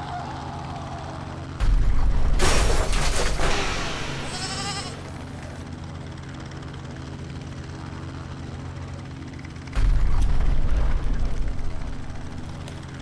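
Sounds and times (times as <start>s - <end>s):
helicopter drone: 0.0s - 13.0s
loud deep crash with crunching: 1.6s - 4.3s.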